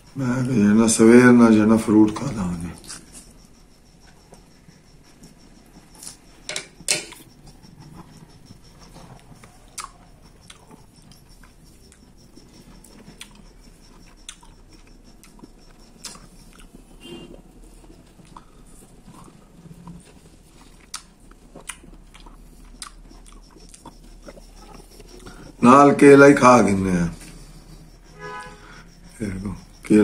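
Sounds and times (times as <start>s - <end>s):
person chewing fruit: 2.8s - 25.6s
mouth clicks: 5.1s - 17.0s, 20.8s - 25.6s.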